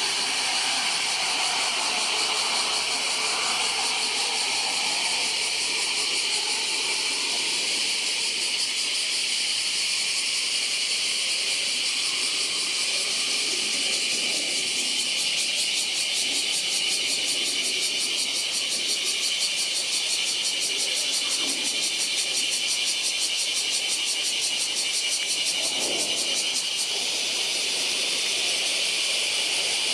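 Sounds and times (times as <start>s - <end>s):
jet rumble: 0.0s - 8.8s
cicadas buzzing: 0.0s - 29.9s.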